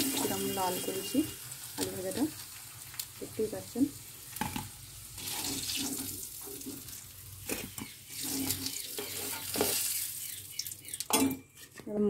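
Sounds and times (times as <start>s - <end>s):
potatoes sizzling in hot oil: 0.0s - 11.1s
metal spoon scraping wok: 7.4s - 10.0s.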